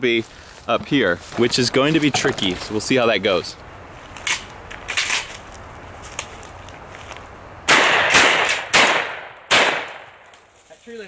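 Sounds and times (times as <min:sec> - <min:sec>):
loud shotgun shots: 0:07.7 - 0:10.2.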